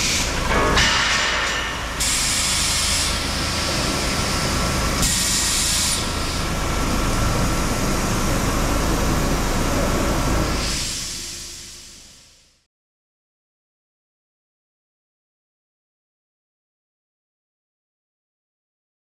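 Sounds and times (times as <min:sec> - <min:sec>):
air hiss bursts: 0:00.0 - 0:08.5, 0:10.2 - 0:12.6
conveyor machinery clattering: 0:00.0 - 0:11.4.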